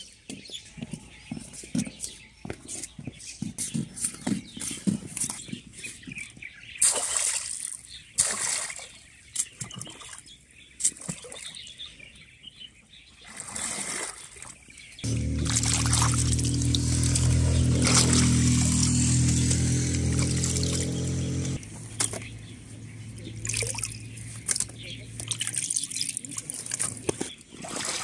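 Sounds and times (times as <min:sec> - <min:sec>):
water splashing and trickling: 0:06.8 - 0:12.2, 0:13.2 - 0:28.0
steady low multi-tone hum: 0:15.0 - 0:25.3.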